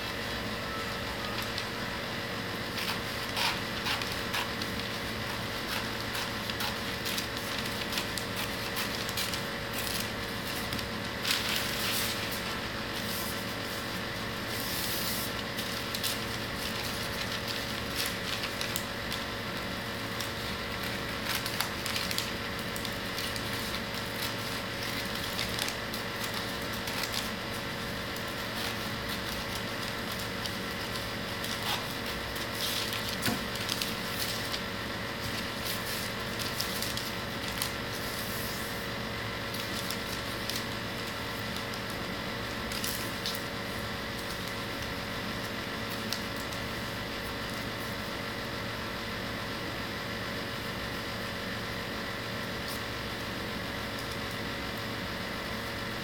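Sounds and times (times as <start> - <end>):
steady hum: 0.0 - 56.0
paper rustling and crinkling: 0.1 - 38.8, 39.4 - 48.1
scissors snipping paper: 2.6 - 13.4, 20.1 - 27.5, 28.1 - 34.6.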